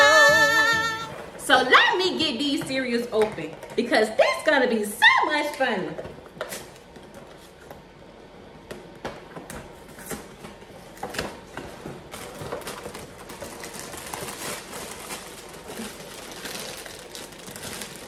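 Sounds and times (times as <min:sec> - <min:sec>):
plastic bag crinkling: 0:12.0 - 0:18.0.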